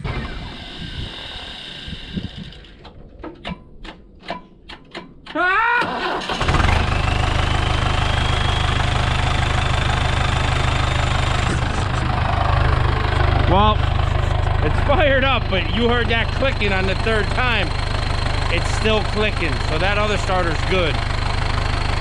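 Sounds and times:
diesel engine starting and idling: 0:00.0 - 0:03.5, 0:05.3 - 0:22.0
starter motor clicking: 0:00.0 - 0:04.0.

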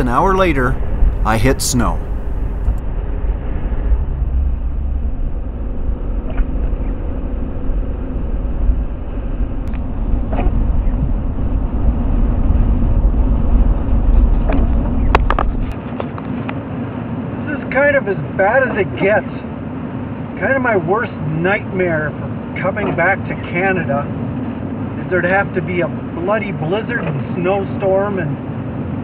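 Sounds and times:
vehicle engine and tyres rumbling: 0:00.0 - 0:17.4.

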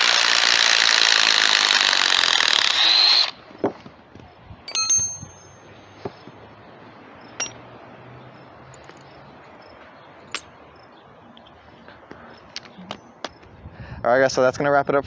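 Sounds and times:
metal bolts clinking: 0:04.7 - 0:05.6, 0:07.4 - 0:07.6, 0:10.3 - 0:10.6.

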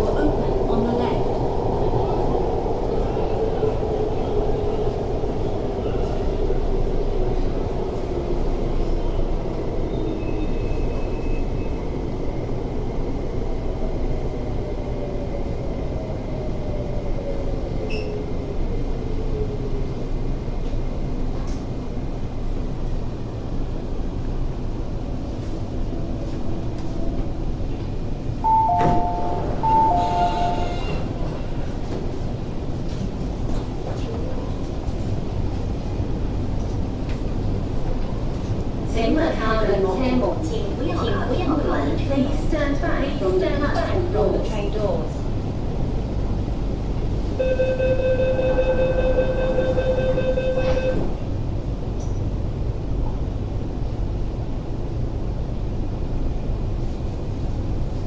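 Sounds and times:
low train rumble: 0:00.0 - 0:58.0
two-note door chime: 0:28.5 - 0:30.6
high door-closing warning beep: 0:28.5 - 0:31.0, 0:47.4 - 0:51.1
train doors hissing open: 0:28.5 - 0:31.5.

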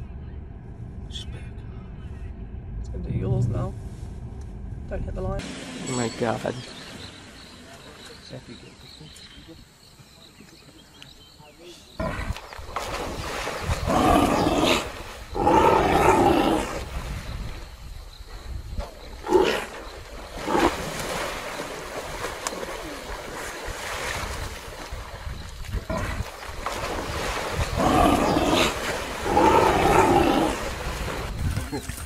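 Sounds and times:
water splashing: 0:12.3 - 0:15.4, 0:19.0 - 0:32.0
short sharp splashes: 0:20.2 - 0:29.8.

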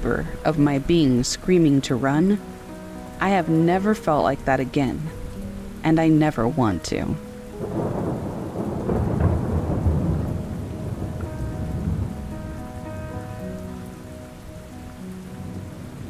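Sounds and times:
soft background music: 0:00.0 - 0:16.0
steady rain: 0:00.0 - 0:16.0
rolling thunder: 0:07.6 - 0:13.8.

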